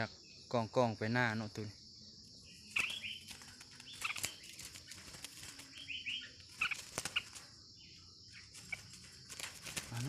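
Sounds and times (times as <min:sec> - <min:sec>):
bird chirps: 0:00.0 - 0:10.0
insect buzz: 0:00.0 - 0:10.0
bird wings flapping in cage: 0:02.7 - 0:05.8, 0:06.5 - 0:07.5, 0:08.5 - 0:10.0.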